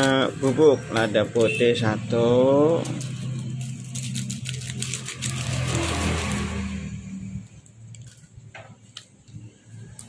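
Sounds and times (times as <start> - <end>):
plastic sachet crinkly ticks: 7.4 - 10.0.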